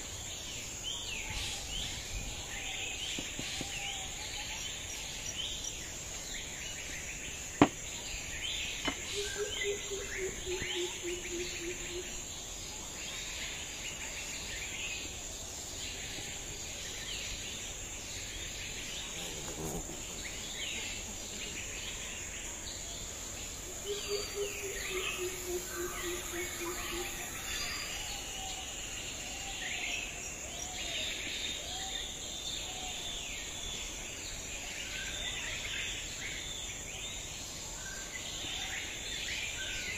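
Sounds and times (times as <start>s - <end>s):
insects whining: 0.0s - 39.9s
sharp knock: 7.6s - 7.8s.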